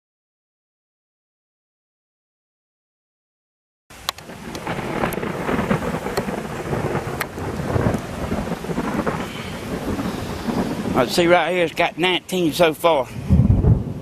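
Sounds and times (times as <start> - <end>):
rain drop ticks: 3.9 - 13.1
heavy rain hissing: 3.9 - 14.0.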